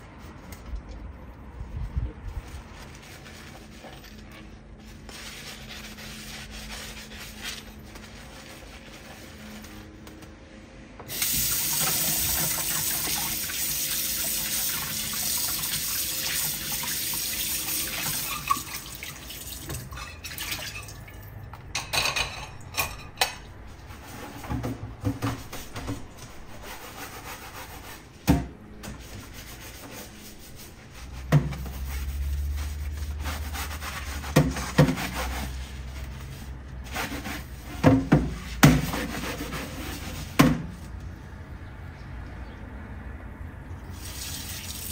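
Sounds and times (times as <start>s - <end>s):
sponge scrubbing a mesh filter: 2.2s - 10.0s, 11.1s - 19.5s, 26.5s - 28.1s, 29.0s - 40.9s
tap water running into sink: 11.1s - 21.2s, 44.0s - 44.9s
dishware knocking and clinking: 21.8s - 23.5s.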